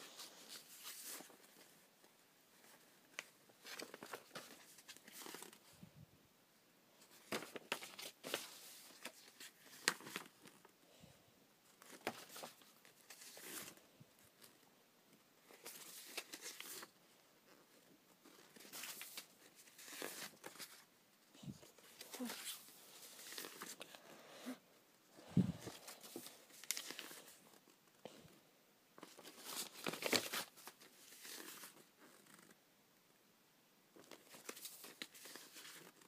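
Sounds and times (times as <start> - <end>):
paper rustling and crinkling: 0.0 - 5.8, 7.0 - 10.7, 11.7 - 14.6, 15.4 - 20.9, 21.6 - 24.1, 25.2 - 27.8, 29.0 - 32.6, 34.0 - 36.0.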